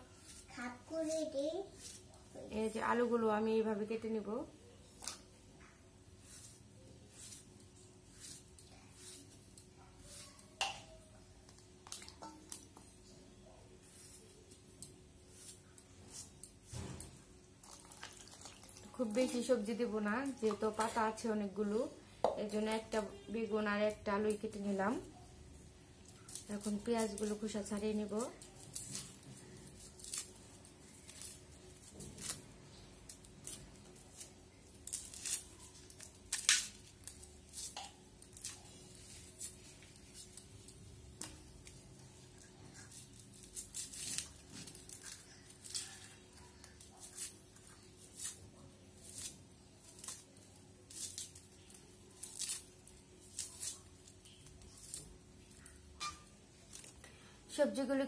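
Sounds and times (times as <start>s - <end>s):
onion skins crackling and tearing: 26.0s - 57.1s.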